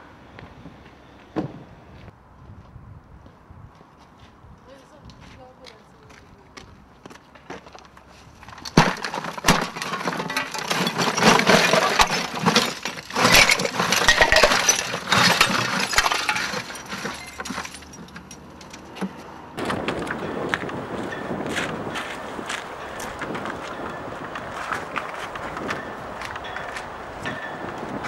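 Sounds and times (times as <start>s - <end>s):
rubbish clattering and crunching: 7.0s - 28.0s.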